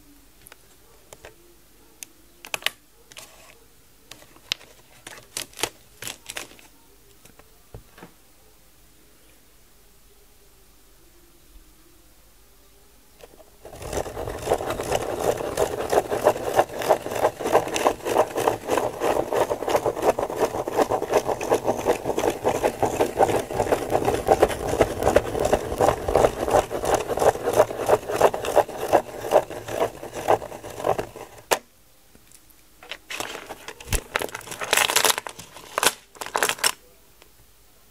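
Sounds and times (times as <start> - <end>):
clicks and rustles: 4.1 - 7.5, 13.2 - 31.6, 32.2 - 36.8
pen scratching on paper: 13.6 - 31.6.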